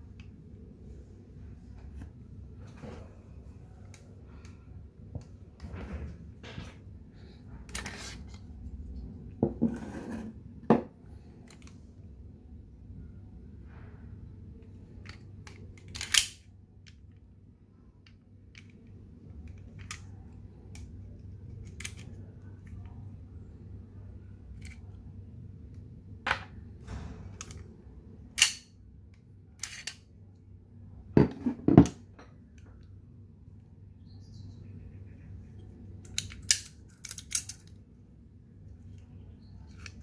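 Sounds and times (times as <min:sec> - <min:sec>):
metallic clicks of pistol parts: 0:15.0 - 0:17.2, 0:20.7 - 0:22.9, 0:28.3 - 0:30.0, 0:36.0 - 0:37.8.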